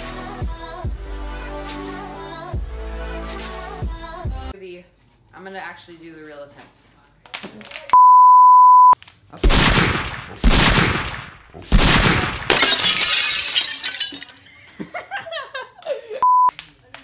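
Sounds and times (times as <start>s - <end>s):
steady beep: 8.0s - 9.0s, 16.2s - 16.5s.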